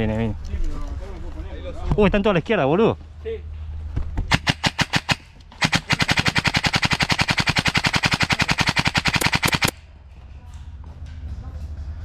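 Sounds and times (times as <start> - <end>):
airsoft guns firing full auto: 4.3 - 9.8.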